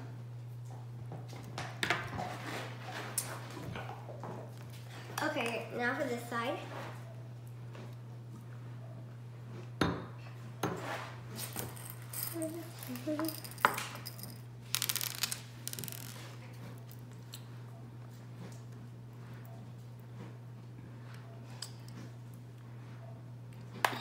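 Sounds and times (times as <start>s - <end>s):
candy rattling in plastic cup: 11.4s - 16.3s.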